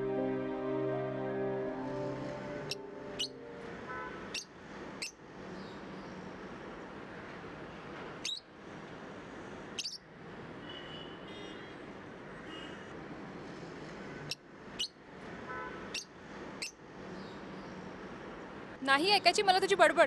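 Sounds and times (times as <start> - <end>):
background hiss: 0.0 - 3.9
soft background music: 0.0 - 4.2
parrot chirps: 2.7 - 3.4, 4.3 - 5.2, 9.8 - 10.0, 15.9 - 16.8.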